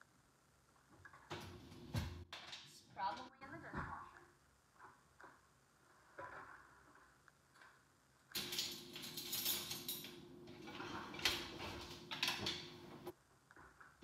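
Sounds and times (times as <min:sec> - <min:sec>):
kitchen utensils clattering: 0:08.4 - 0:13.1.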